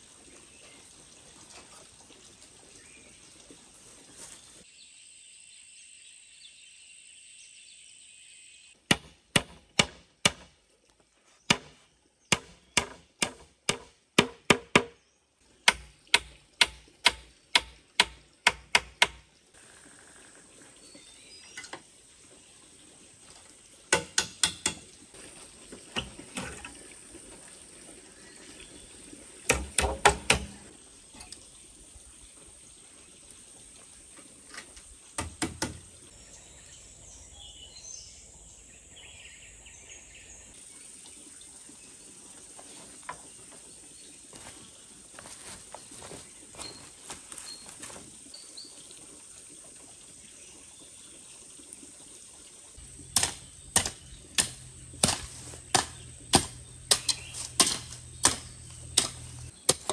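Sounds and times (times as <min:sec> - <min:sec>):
hammer striking wooden frame: 0:08.9 - 0:10.5, 0:11.5 - 0:15.0, 0:15.6 - 0:19.2, 0:23.9 - 0:24.8, 0:29.5 - 0:30.6, 0:35.2 - 0:35.8, 0:53.1 - 0:59.9.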